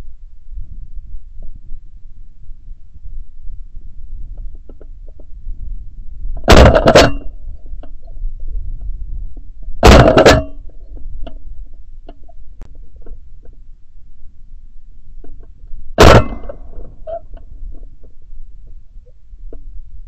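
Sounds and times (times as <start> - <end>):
low wind rumble: 0.0 - 20.0
shotgun shots: 16.0 - 16.7.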